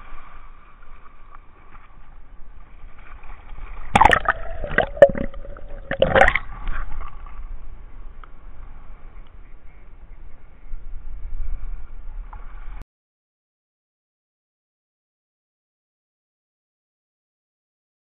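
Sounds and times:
water sloshing and gurgling: 0:00.0 - 0:07.6
wave wash: 0:03.9 - 0:06.7.

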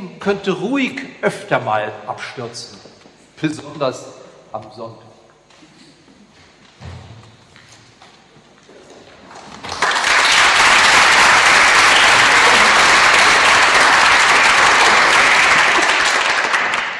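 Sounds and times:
audience applause: 0:09.4 - 0:16.9.

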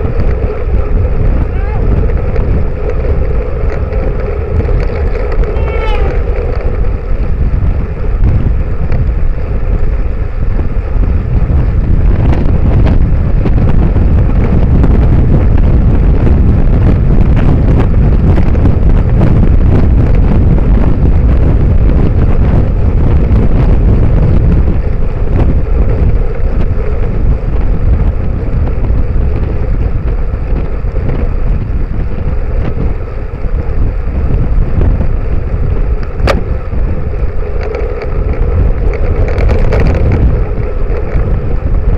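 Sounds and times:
wind rush on microphone: 0:00.0 - 0:41.9.

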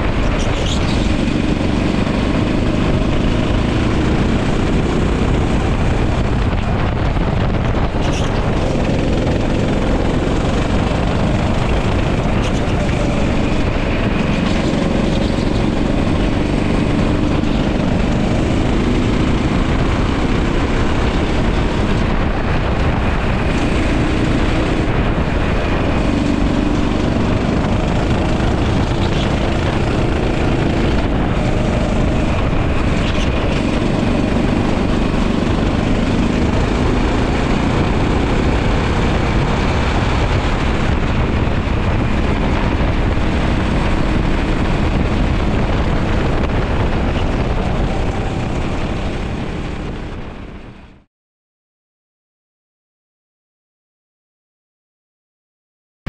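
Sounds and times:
go-kart engine revving: 0:00.0 - 0:50.2
dense rush of noise: 0:00.0 - 0:51.1.

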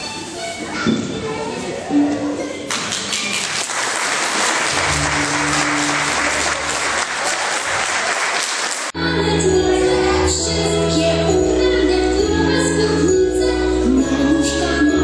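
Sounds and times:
audience applause: 0:02.7 - 0:08.9
music with held notes: 0:04.7 - 0:07.0, 0:09.0 - 0:15.0.

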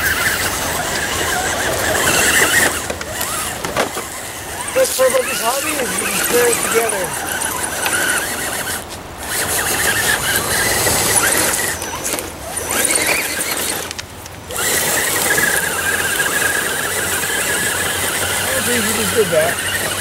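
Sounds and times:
electric motor whining under load: 0:00.0 - 0:20.0.

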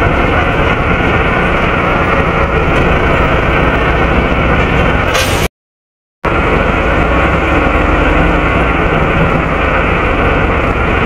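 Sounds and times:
diesel bus engine rumbling: 0:00.0 - 0:05.5, 0:06.2 - 0:11.0.

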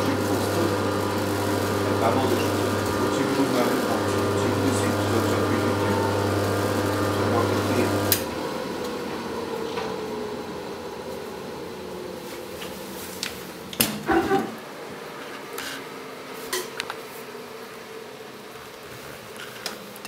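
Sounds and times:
washer-dryer humming: 0:00.0 - 0:15.2.

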